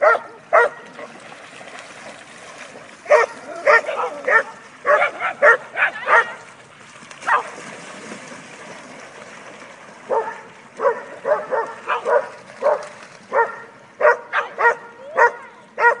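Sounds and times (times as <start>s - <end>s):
dog barking: 0.0s - 0.8s, 3.1s - 6.4s, 7.3s - 7.6s, 10.1s - 16.0s
dogs splashing through water: 0.0s - 16.0s.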